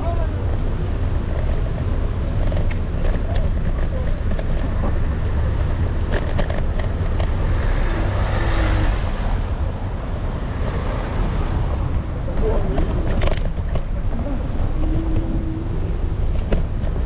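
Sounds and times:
wind rumble on microphone: 0.0 - 17.0
light clicks and rattles: 0.5 - 7.4.

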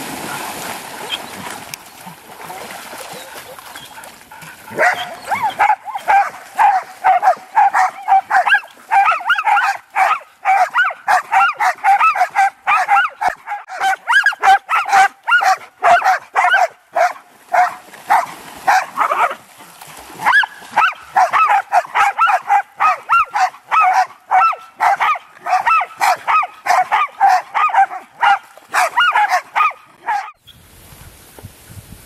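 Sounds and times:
dog barking high: 4.7 - 19.4, 20.2 - 30.4.

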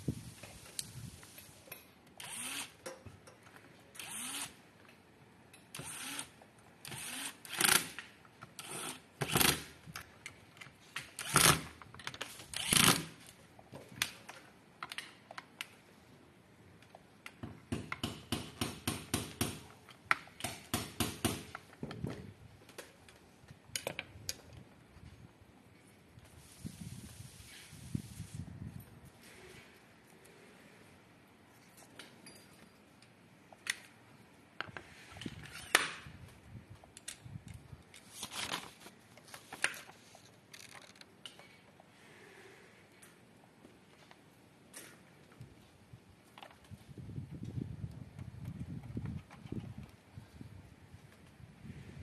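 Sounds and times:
electric screwdriver driving screws: 2.2 - 2.7, 4.0 - 4.5, 5.8 - 6.3, 6.9 - 8.0, 12.5 - 13.1.

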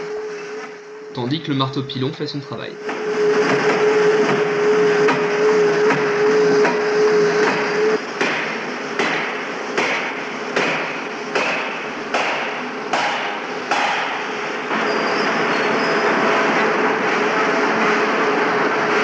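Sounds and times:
power hammer striking hot metal: 5.0 - 15.1.

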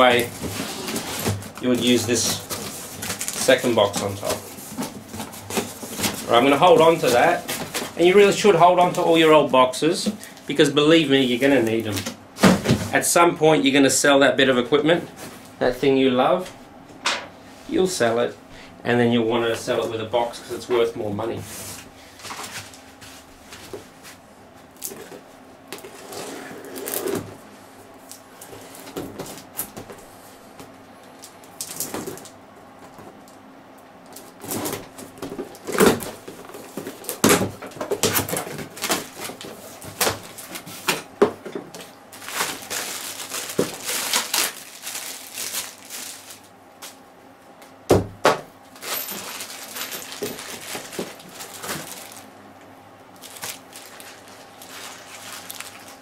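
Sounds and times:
cardboard rustling and tearing: 0.0 - 9.2, 25.8 - 27.4, 34.2 - 40.9, 42.2 - 46.5, 48.8 - 52.3, 53.2 - 56.0.

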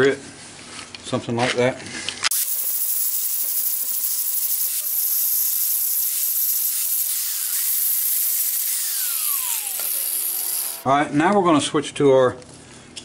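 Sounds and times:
angle grinder grinding steel: 2.3 - 10.9.

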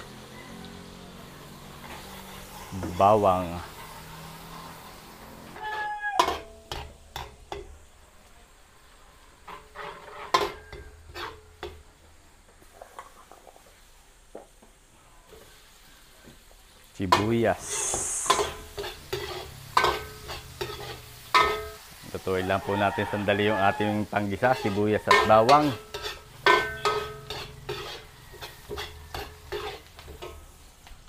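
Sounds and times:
garlic sauteing in hot oil: 0.0 - 31.0
onions sizzling: 0.0 - 31.0
utensil scraping metal pan: 9.4 - 11.7, 17.1 - 21.9, 22.8 - 30.4.

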